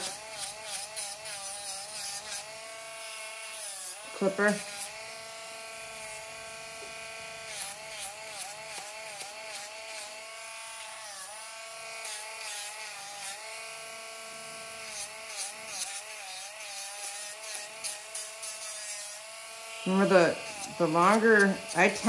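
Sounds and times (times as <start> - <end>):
grinder rasping on nails: 0.0 - 22.0
nail grinder whining: 0.0 - 22.0.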